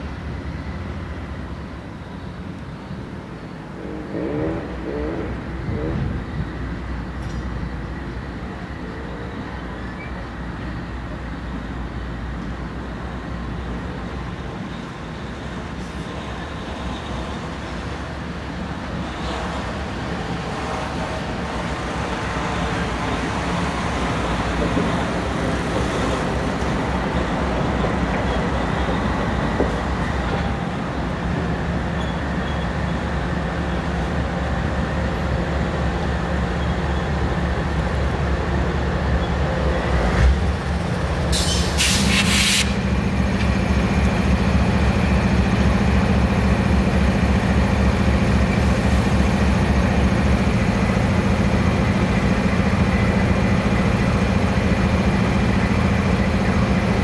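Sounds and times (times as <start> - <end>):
diesel locomotive engine running: 0.0 - 57.0
air brake hiss: 41.3 - 42.8.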